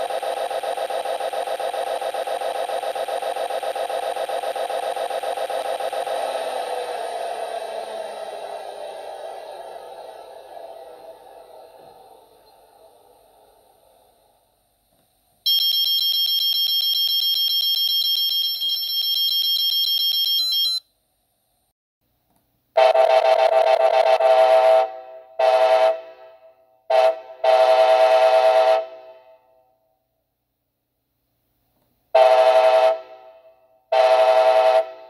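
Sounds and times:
model locomotive horn blasts: 0:22.8 - 0:29.4, 0:32.2 - 0:35.0.

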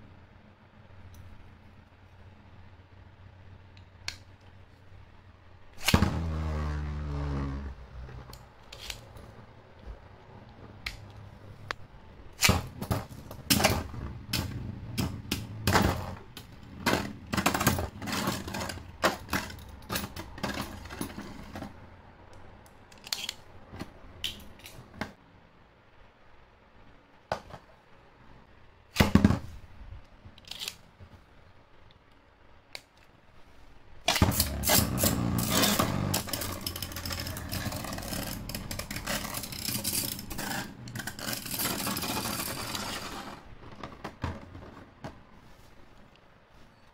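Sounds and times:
spinning top rattling on plastic: 0:34.2 - 0:43.6.

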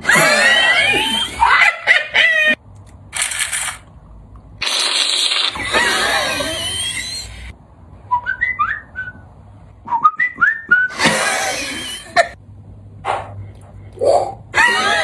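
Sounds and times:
whistled gliding notes: 0:08.1 - 0:09.2, 0:09.8 - 0:11.0.

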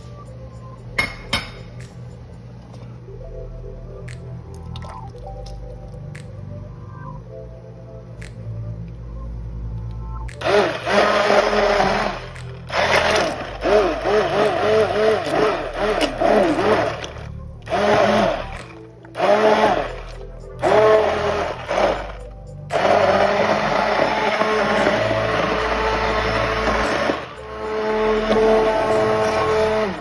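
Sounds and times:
immersion blender whining: 0:10.4 - 0:30.0.

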